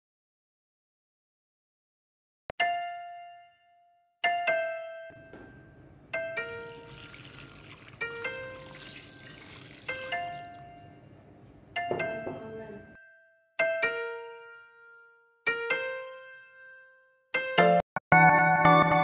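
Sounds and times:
chiming background music: 2.7s - 7.6s
tea pouring and splashing: 6.3s - 10.9s.

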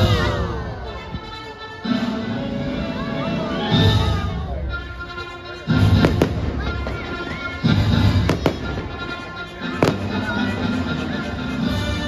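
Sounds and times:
music: 0.0s - 12.0s
fireworks banging: 5.6s - 11.7s
deep fireworks booms: 5.8s - 11.2s.

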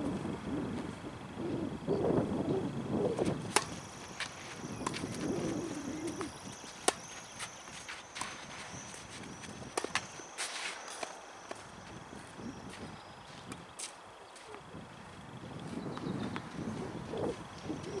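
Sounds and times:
footsteps on court: 3.2s - 17.4s
tennis ball struck by rackets: 3.4s - 5.5s, 6.1s - 8.7s, 9.7s - 10.1s
ball bouncing knocks: 3.5s - 3.8s.

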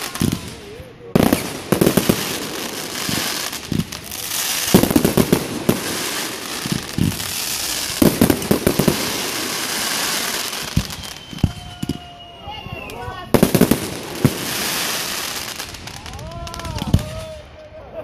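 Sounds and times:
fireworks crackling: 0.0s - 18.0s
firework shells bursting: 1.2s - 12.1s.

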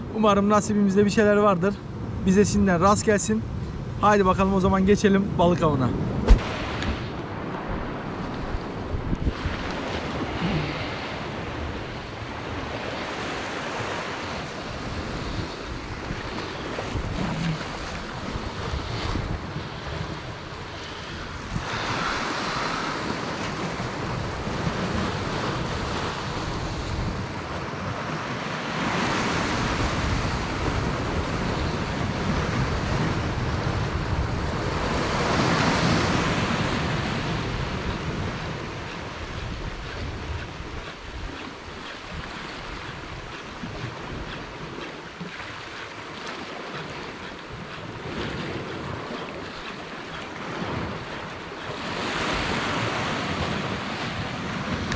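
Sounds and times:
wind on microphone: 3.4s - 54.9s
surf breaking over rocks: 6.2s - 19.6s.

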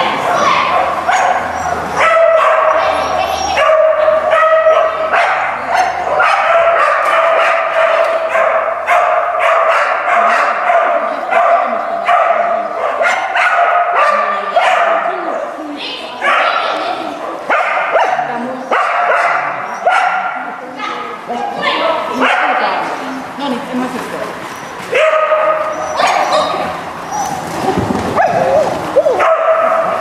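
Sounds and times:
dog barking: 0.5s - 15.2s, 16.2s - 16.8s, 17.4s - 20.5s, 22.2s - 22.7s, 24.9s - 26.6s, 28.2s - 30.0s.

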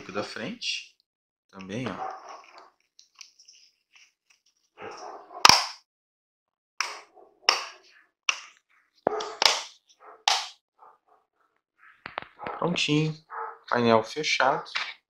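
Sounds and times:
plastic clips snapping: 9.1s - 9.7s.

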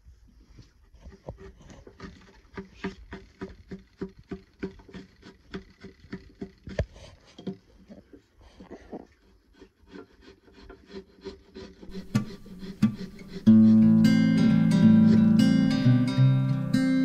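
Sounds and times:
chisel scraping wood: 1.1s - 7.7s, 9.1s - 16.7s
acoustic guitar music: 11.9s - 17.0s.

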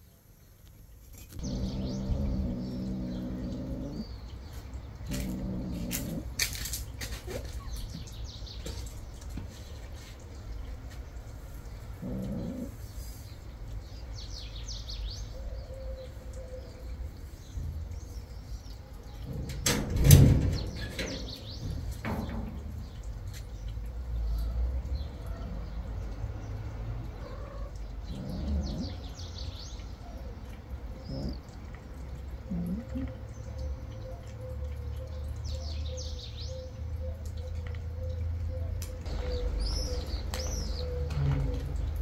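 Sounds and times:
small birds chirping: 0.0s - 42.0s
cat humming while eating: 32.4s - 33.2s.

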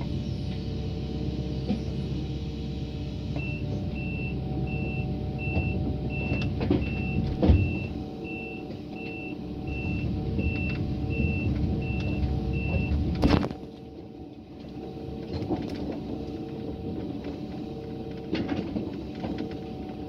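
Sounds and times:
excavator diesel engine: 0.0s - 20.0s
travel alarm beeping: 3.3s - 13.0s.

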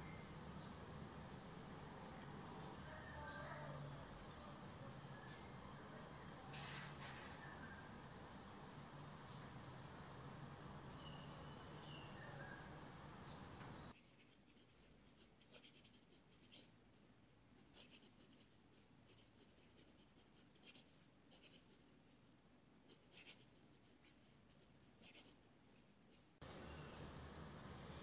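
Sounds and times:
pen writing on paper: 22.9s - 24.2s.

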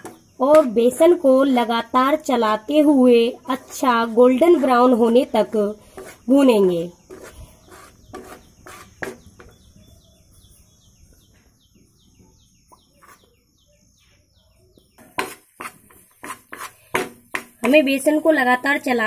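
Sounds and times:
spatula scraping a pan: 3.4s - 6.4s, 7.0s - 9.6s, 15.0s - 18.0s
bird chirping: 6.2s - 16.9s.

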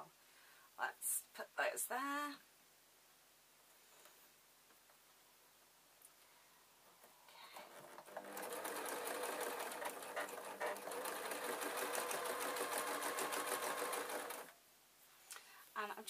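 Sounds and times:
sewing machine stitching: 7.5s - 14.5s.

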